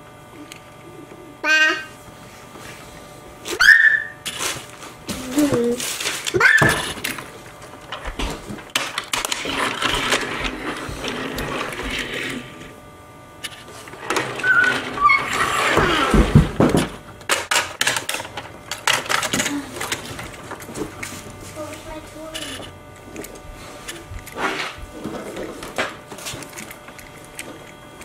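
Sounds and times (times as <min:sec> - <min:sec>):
toy cars clicking on a tabletop: 0:22.3 - 0:22.7.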